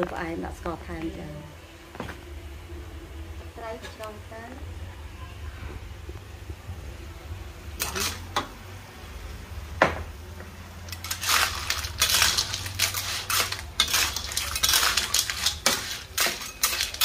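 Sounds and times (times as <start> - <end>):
metal spatula scraping a wok: 7.8 - 8.4, 10.9 - 17.0.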